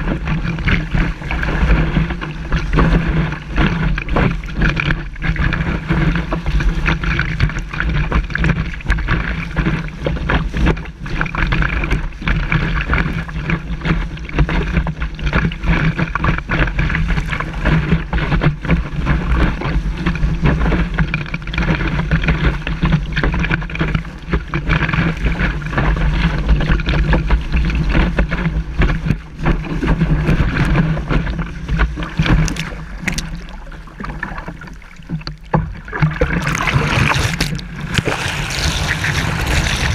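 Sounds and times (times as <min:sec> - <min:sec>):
water splashes: 0:00.0 - 0:39.9.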